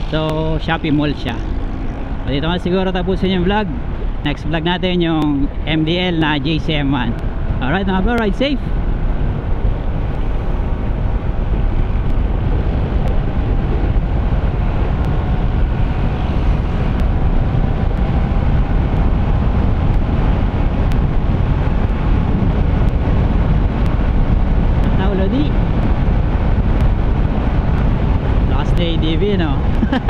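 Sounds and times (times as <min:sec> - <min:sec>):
scooter engine cruising: 0:00.0 - 0:04.0
wind rush on microphone: 0:00.0 - 0:30.0.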